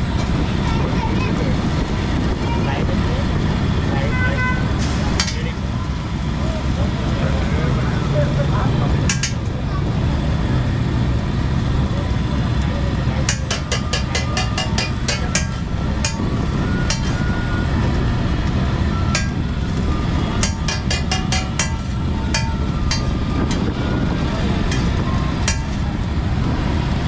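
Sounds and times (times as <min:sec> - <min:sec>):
low rumble: 0:14.5 - 0:27.0.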